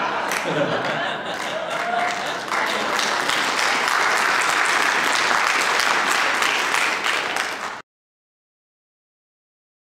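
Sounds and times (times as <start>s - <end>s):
audience applauding: 0.1s - 7.8s.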